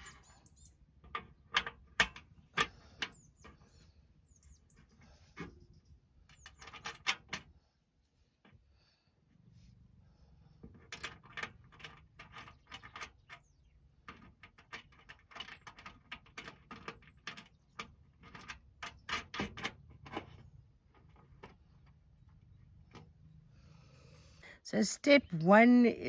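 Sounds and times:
metal nuts clicking and scraping: 0:00.0 - 0:07.5, 0:10.6 - 0:23.2
metal panel rattling: 0:00.9 - 0:03.8, 0:04.7 - 0:07.5, 0:10.6 - 0:23.2.

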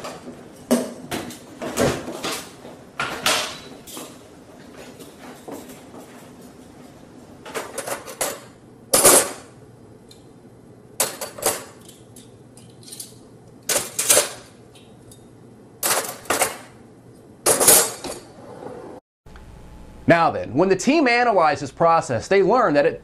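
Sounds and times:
silverware clattering into a tray: 0:12.6 - 0:14.5, 0:15.8 - 0:16.7, 0:17.5 - 0:18.2.

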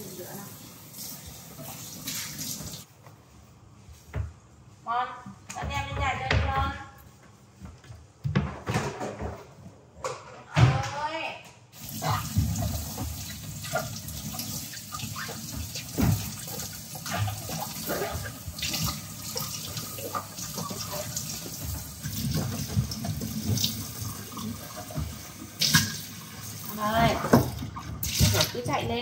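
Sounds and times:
tap running water into sink: 0:11.8 - 0:29.0.

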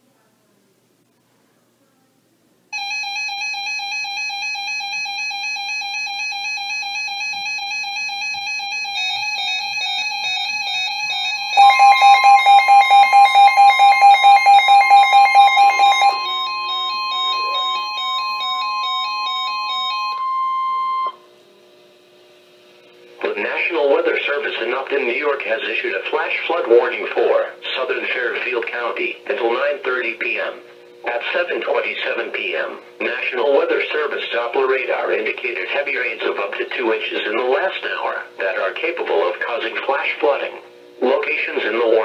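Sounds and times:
steady high alarm tone: 0:02.8 - 0:21.4
rapid loud beeping: 0:08.9 - 0:21.2
layered electronic alert beeps: 0:11.6 - 0:21.1.

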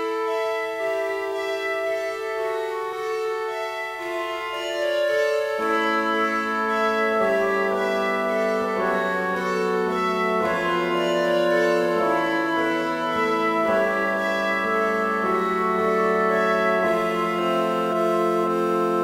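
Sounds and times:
instrumental background music: 0:00.0 - 0:19.0.

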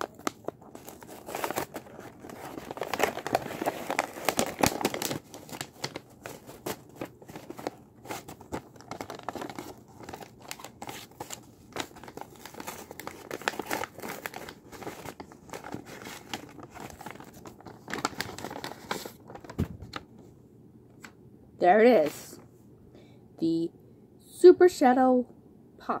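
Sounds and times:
paper crinkling and rustling: 0:00.0 - 0:20.3.

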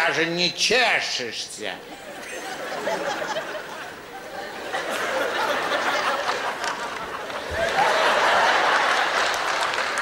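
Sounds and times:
audience laughing: 0:01.9 - 0:09.7.

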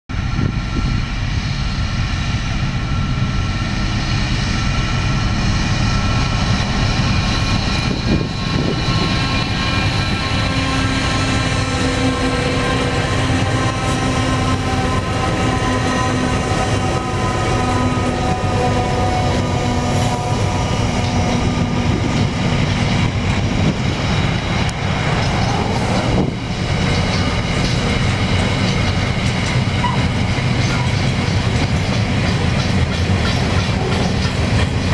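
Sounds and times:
locomotive engine drone: 0:00.1 - 0:34.9
wagon wheels clattering on rails: 0:26.8 - 0:34.9.

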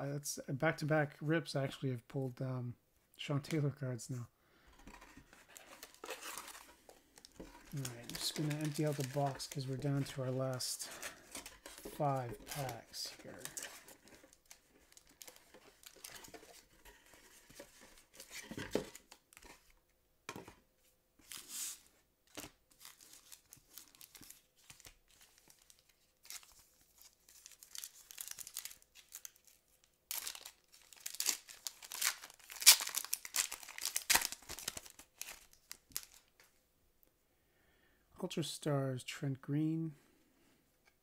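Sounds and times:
foil wrappers crinkling: 0:04.9 - 0:16.4, 0:22.7 - 0:36.3
pack torn open crackling: 0:27.4 - 0:36.3.

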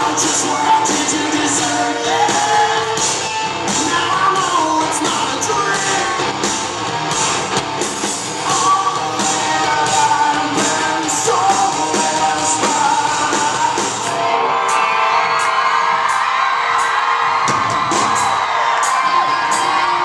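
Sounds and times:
vocals: 0:00.0 - 0:07.2, 0:07.9 - 0:15.0, 0:18.9 - 0:20.0
drums: 0:00.0 - 0:20.0
electric guitars: 0:00.0 - 0:20.0.

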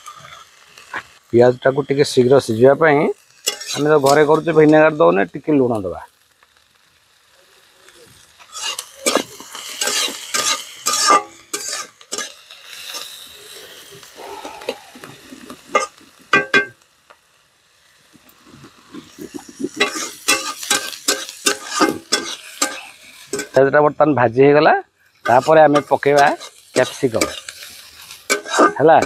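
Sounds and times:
onions sizzling in hot oil: 0:00.0 - 0:29.0
metal spatula scraping a pan: 0:01.6 - 0:05.2, 0:08.5 - 0:14.0, 0:14.6 - 0:16.8, 0:18.5 - 0:23.6, 0:25.2 - 0:29.0.

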